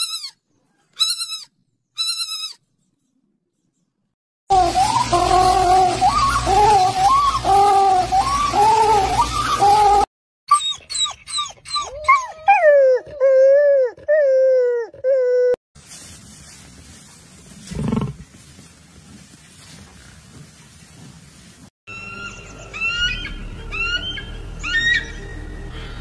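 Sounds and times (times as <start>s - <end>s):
fox yelping and whining: 4.7s - 15.6s.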